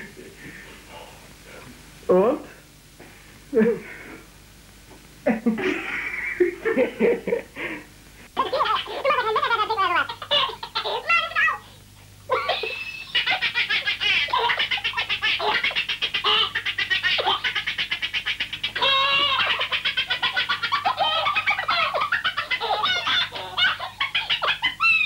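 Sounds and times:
man laughing high-pitched: 12.3 - 16.1.

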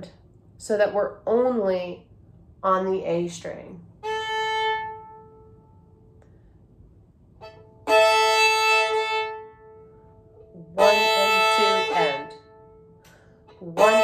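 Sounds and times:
bowed fiddle: 4.0 - 5.9, 7.4 - 14.0.

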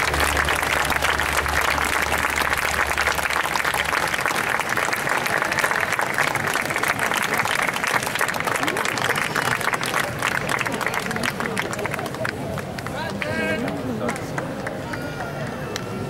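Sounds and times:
low hum: 0.0 - 5.1
audience applauding: 0.0 - 16.0.

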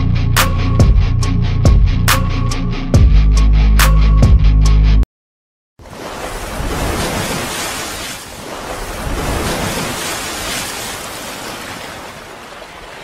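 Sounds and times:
rushing splashing water: 5.8 - 13.0.

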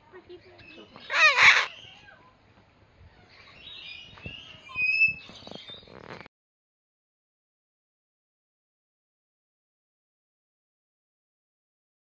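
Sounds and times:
cockatoo harsh call: 1.1 - 1.8
cockatoo chirps and whistles: 4.4 - 6.0.

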